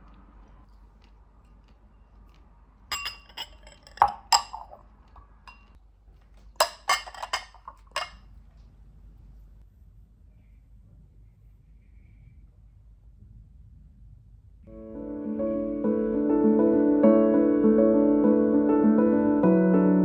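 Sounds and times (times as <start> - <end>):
ceramic bowls clinking: 2.9 - 5.8, 6.6 - 8.3.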